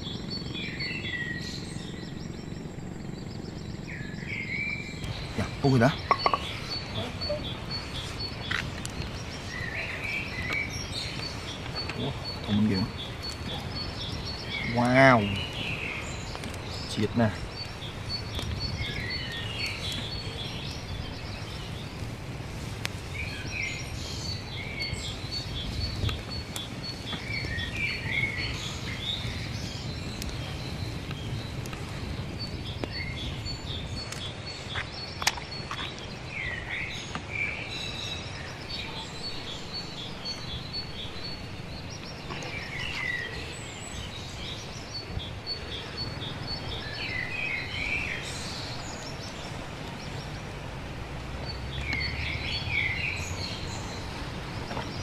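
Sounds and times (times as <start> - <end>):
rapid high ticking bird call: 0.0 - 21.8
birds chirping: 0.0 - 55.0.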